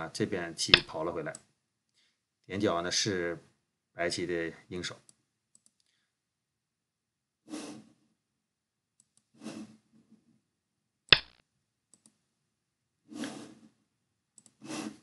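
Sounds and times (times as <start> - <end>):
sharp click: 11.1 - 11.4.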